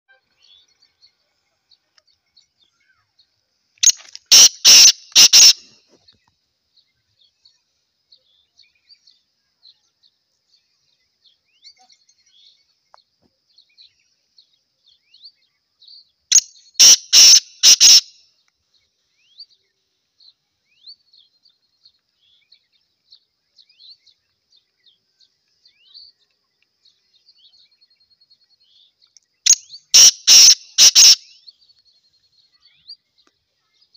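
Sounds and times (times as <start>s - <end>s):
faint high chirps and ticks: 0.1s - 33.9s
francolin harsh call: 3.8s - 5.8s, 16.3s - 18.2s, 29.5s - 31.5s.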